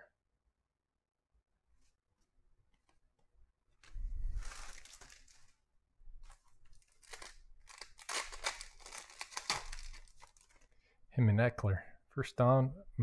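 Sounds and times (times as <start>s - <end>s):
foil wrapper tearing and crinkling: 4.3s - 5.6s, 6.2s - 10.7s.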